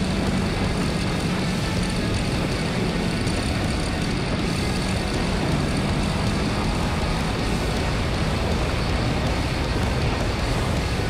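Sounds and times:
motorcycle engine running hard: 0:00.0 - 0:11.0
rushing wind noise: 0:00.0 - 0:11.0.

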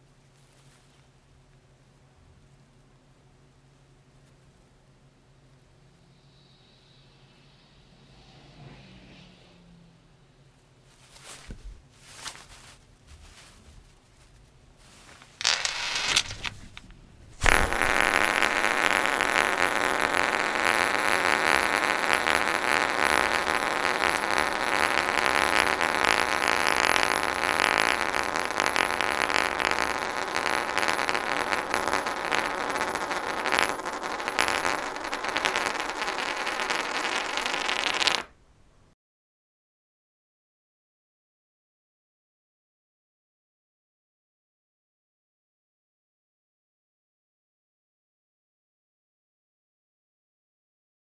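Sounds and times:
metal ring spinning on wood: 0:15.2 - 0:38.3.

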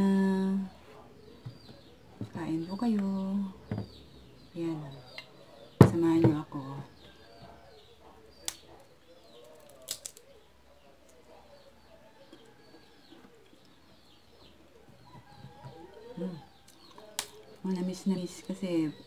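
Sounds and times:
faint birds calling: 0:00.0 - 0:19.0
peanut shells cracking: 0:08.3 - 0:11.3, 0:16.5 - 0:17.7.

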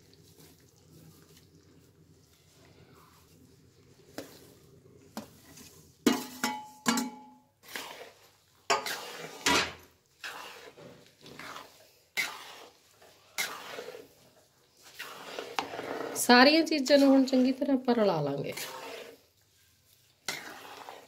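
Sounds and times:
spatula scraping thick mix: 0:00.0 - 0:06.2, 0:07.6 - 0:21.0
steel bowl knocking on pan rim: 0:06.1 - 0:07.3.

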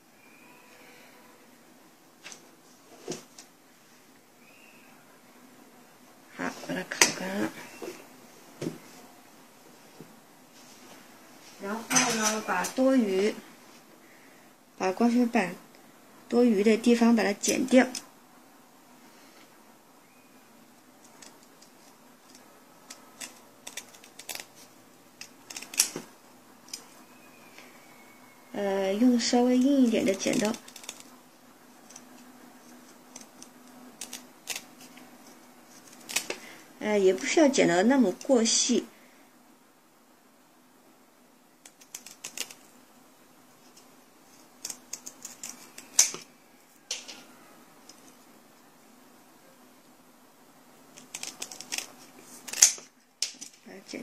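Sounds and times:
scissors snipping: 0:21.0 - 0:26.0, 0:29.6 - 0:31.1, 0:41.6 - 0:42.6, 0:44.6 - 0:46.3, 0:51.0 - 0:53.6.

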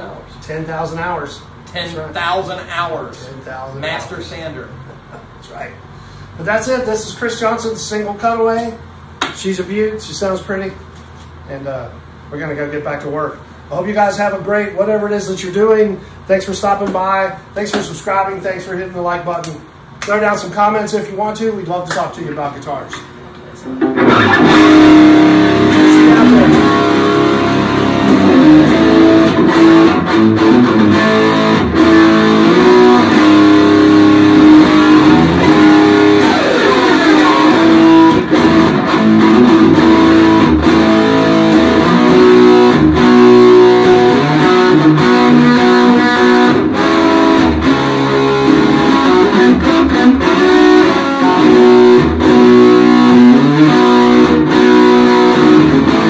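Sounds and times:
electric guitar playing: 0:23.2 - 0:56.0.

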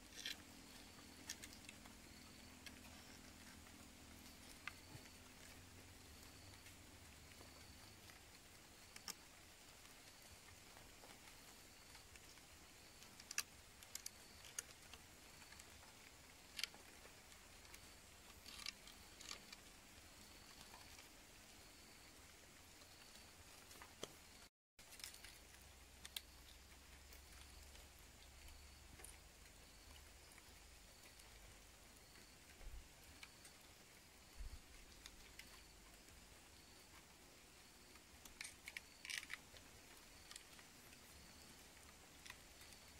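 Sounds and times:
faint clicks of cord on sticks: 0:00.0 - 0:42.9.

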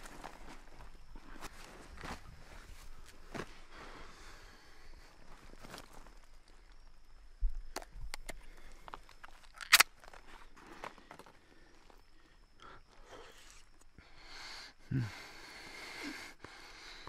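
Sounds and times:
can lid cracking open: 0:09.4 - 0:09.9.

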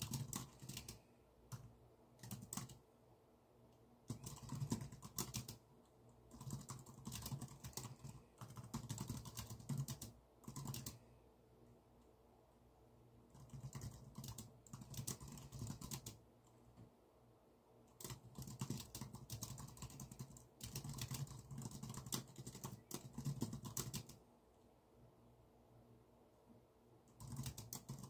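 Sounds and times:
keyboard typing: 0:00.0 - 0:02.8, 0:04.0 - 0:05.6, 0:06.3 - 0:11.1, 0:13.3 - 0:16.2, 0:17.9 - 0:24.2, 0:27.1 - 0:28.0
faint steady hum: 0:00.0 - 0:28.0.

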